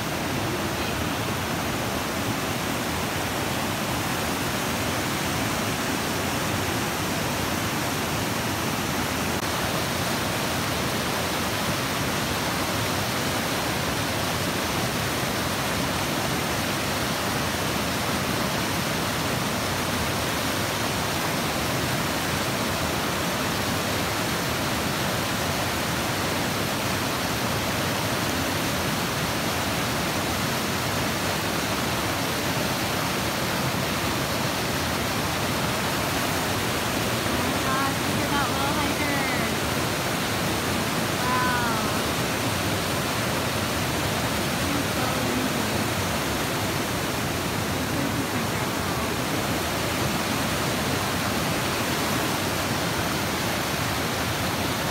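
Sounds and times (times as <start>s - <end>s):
river rushing over rocks: 0.0s - 54.9s.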